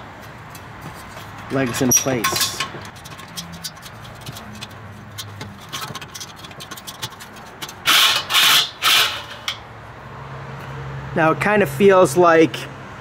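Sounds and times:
metal ring scraping: 0:00.4 - 0:09.7
light metal clicks and taps: 0:00.5 - 0:07.8.

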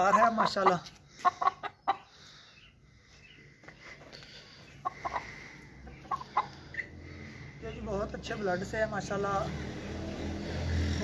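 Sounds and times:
chicken clucking: 0:00.0 - 0:02.3, 0:04.6 - 0:07.0.

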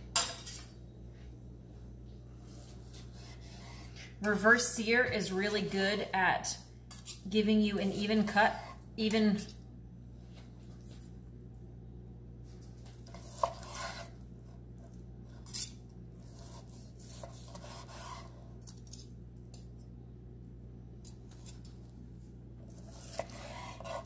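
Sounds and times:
steady low hum: 0:00.0 - 0:24.0
knife sawing through steak: 0:16.3 - 0:18.4, 0:22.8 - 0:24.0.

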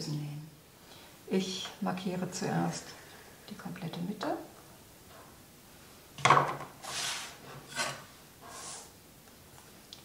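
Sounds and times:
rubbing scrapes on fabric: 0:06.8 - 0:08.9.

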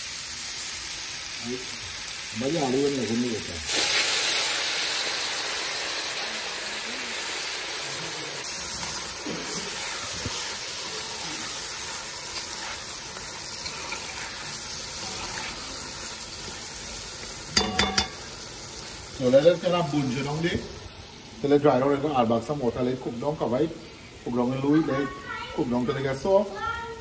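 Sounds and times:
water sizzling in a hot pot: 0:00.0 - 0:27.0
metal spoon stirring: 0:11.8 - 0:15.7, 0:17.5 - 0:18.3.

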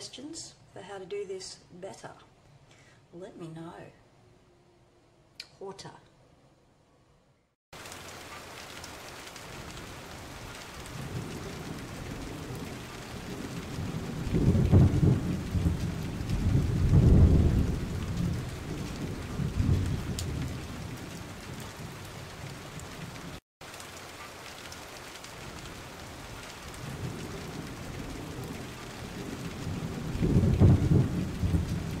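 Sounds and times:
steady rain: 0:07.7 - 0:32.0
thunder rumbling: 0:09.4 - 0:23.4, 0:25.3 - 0:32.0.

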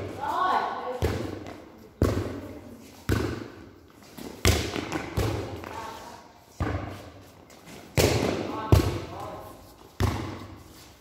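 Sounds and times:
volleyball hits echoing: 0:00.0 - 0:02.5, 0:03.1 - 0:05.8, 0:07.9 - 0:09.3.

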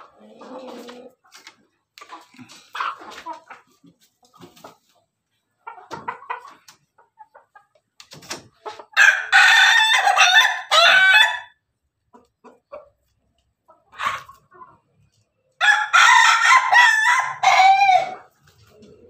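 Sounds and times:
chicken clucking: 0:00.0 - 0:19.0
rooster crowing: 0:15.6 - 0:18.2.

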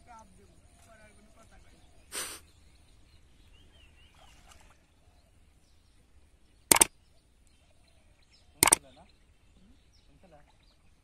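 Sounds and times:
faint bird calls: 0:00.4 - 0:05.8
sharp click sound effects: 0:06.7 - 0:06.9.

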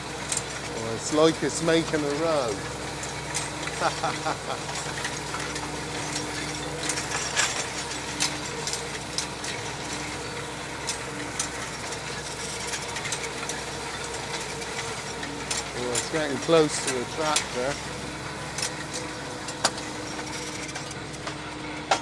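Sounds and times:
tedder rotors clicking and knocking: 0:00.0 - 0:22.0
tractor engine running: 0:00.0 - 0:22.0.

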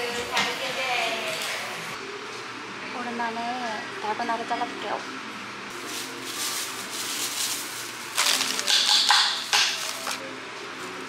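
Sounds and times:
paper crinkling and crackling: 0:05.7 - 0:09.0, 0:09.6 - 0:10.2
plastic gloves crinkling: 0:05.7 - 0:10.2.

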